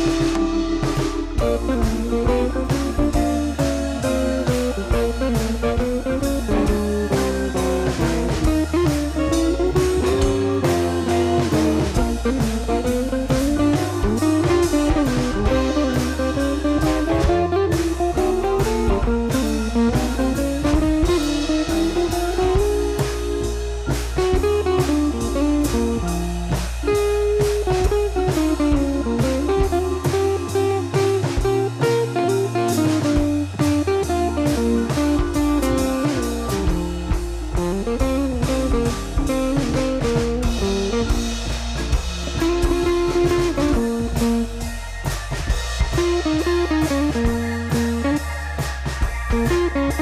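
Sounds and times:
bass line: 0.0s - 50.0s
blues guitar melody: 0.0s - 50.0s
steady drum beat: 0.0s - 50.0s.

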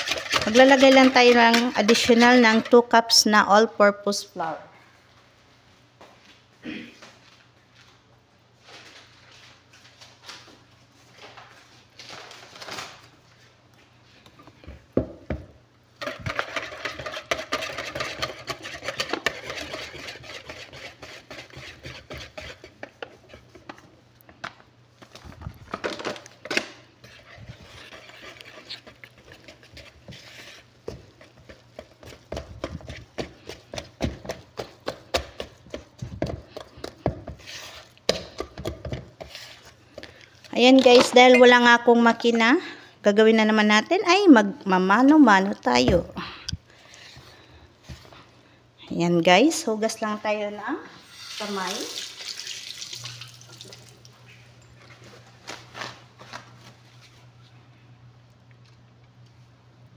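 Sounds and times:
whisk scraping knocks in bowl: 0.0s - 2.9s, 16.0s - 23.6s, 27.0s - 39.6s.

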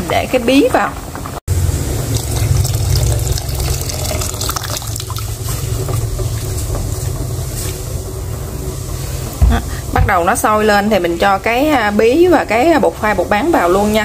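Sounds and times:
low rumble: 1.5s - 11.9s
water trickling into metal pot: 1.7s - 6.7s.

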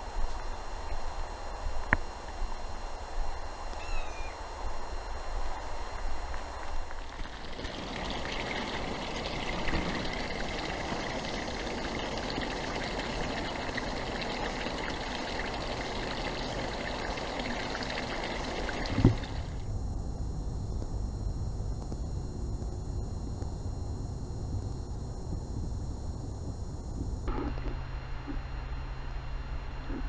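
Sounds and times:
stream trickling: 6.8s - 19.6s.

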